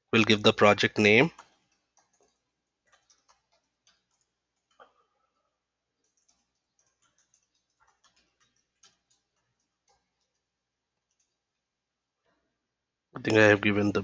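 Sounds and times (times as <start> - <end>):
computer keyboard typing: 0.2 - 5.2, 5.9 - 11.6.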